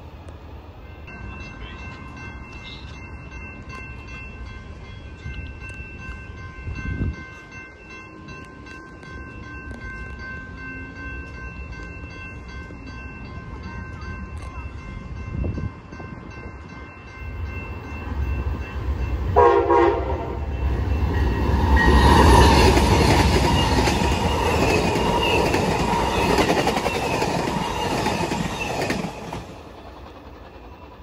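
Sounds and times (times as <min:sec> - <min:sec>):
train wheels rushing on rail: 0:00.0 - 0:31.0
crossing bell ringing: 0:00.7 - 0:29.7
train horn blast: 0:19.3 - 0:20.6.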